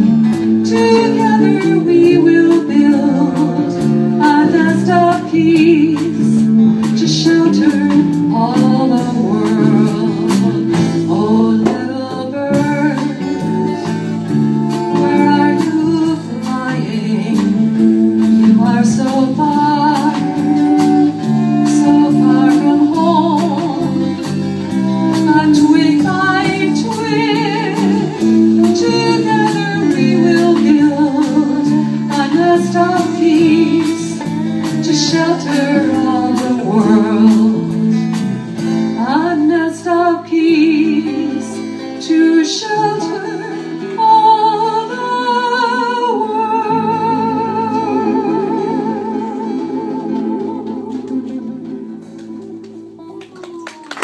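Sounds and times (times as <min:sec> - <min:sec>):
drum kit beat: 0:00.0 - 0:39.6
acoustic guitar: 0:00.0 - 0:54.0
bass guitar: 0:00.0 - 0:54.0
electric guitar: 0:00.0 - 0:54.0.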